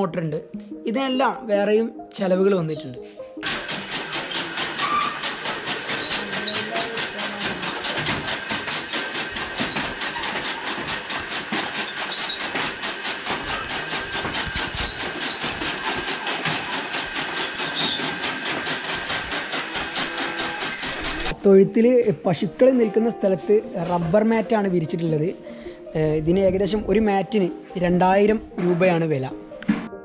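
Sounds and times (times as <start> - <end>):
machine running with pulsing beat: 3.4 - 21.4.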